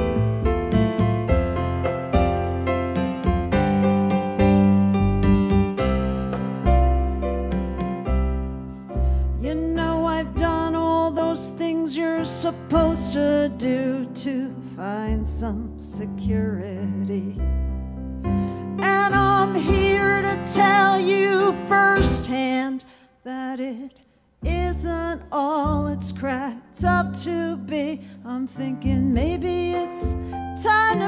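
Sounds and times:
piano: 0:00.0 - 0:23.7, 0:24.4 - 0:31.0
woman singing a ballad: 0:09.4 - 0:17.4, 0:18.6 - 0:31.0.

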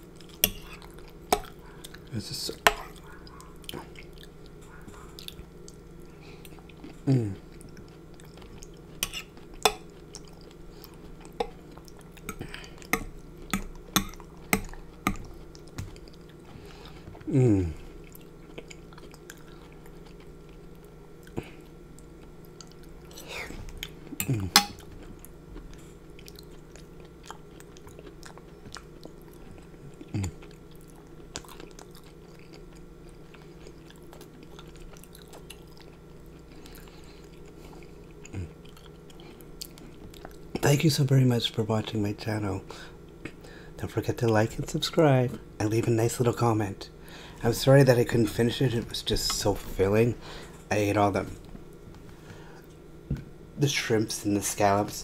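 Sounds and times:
person chewing: 0:00.0 - 0:40.6
low steady hum: 0:00.0 - 0:55.0.

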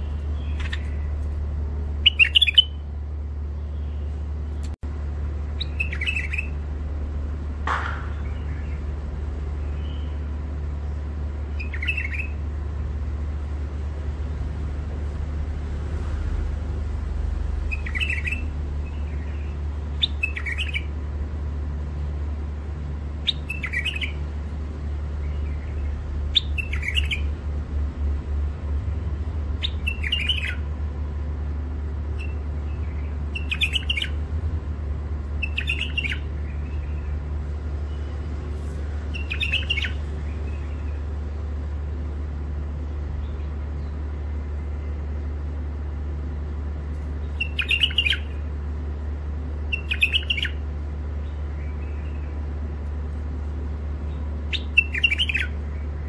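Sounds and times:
steady low hum: 0:00.0 - 0:56.0
bird giving sharp calls: 0:02.0 - 0:02.8, 0:35.4 - 0:36.6, 0:47.4 - 0:48.4, 0:49.7 - 0:50.6, 0:54.5 - 0:55.6.

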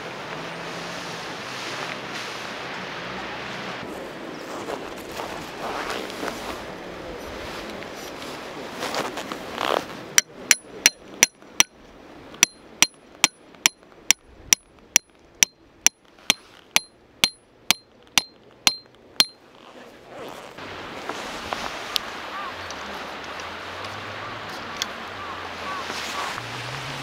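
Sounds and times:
hammer striking metal stake: 0:10.2 - 0:11.8, 0:12.4 - 0:19.4.

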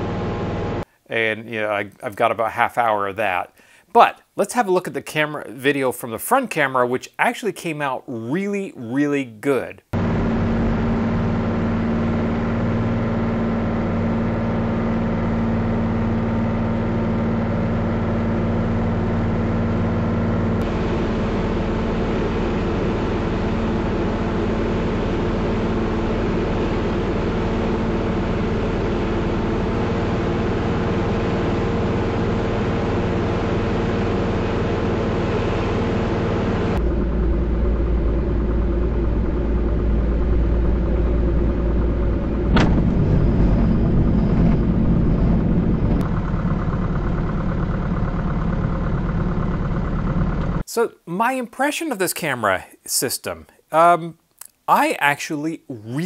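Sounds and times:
heavy low rumble: 0:09.9 - 0:50.6
light aircraft engine drone: 0:10.0 - 0:50.6.

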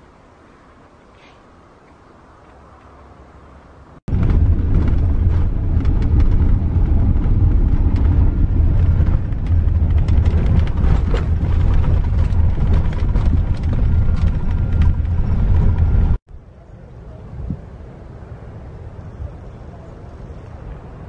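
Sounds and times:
vehicle engine and road rumble: 0:00.0 - 0:21.0
rattles and knocks over bumps: 0:04.1 - 0:16.2.

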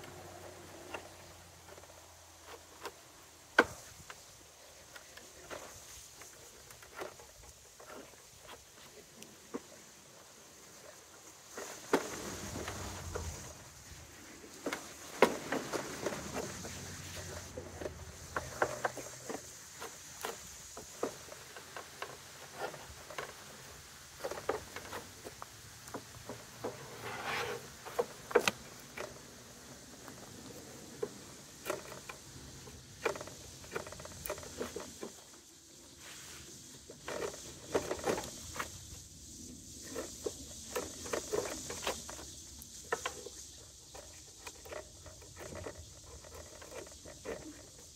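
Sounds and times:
wood knocking and scraping: 0:11.5 - 0:35.4, 0:36.0 - 0:38.8.

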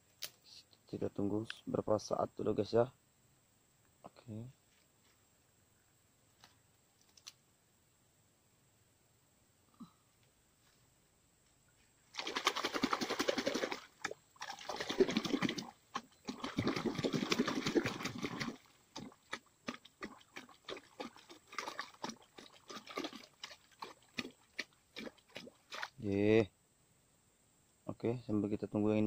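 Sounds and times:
small clicks: 0:06.4 - 0:07.4
water splashing and sloshing: 0:12.1 - 0:26.0.

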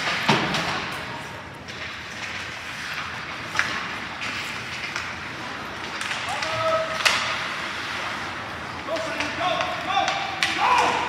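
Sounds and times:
skates hissing on ice: 0:07.3 - 0:09.1.

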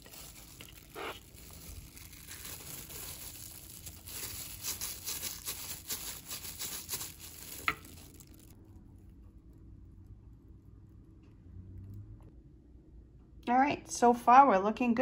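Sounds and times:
plastic glove crinkling: 0:00.0 - 0:08.6.

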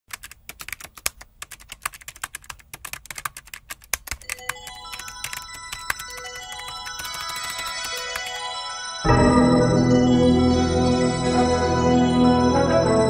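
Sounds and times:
typing key clicks: 0:00.1 - 0:08.4
music notes: 0:04.4 - 0:13.0.

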